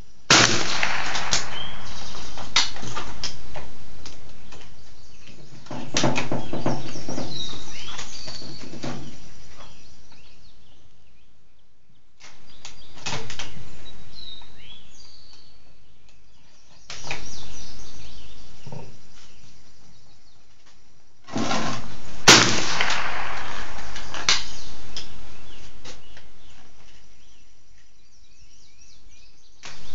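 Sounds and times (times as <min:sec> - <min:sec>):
gunshots: 0:00.3 - 0:03.3, 0:21.3 - 0:25.3.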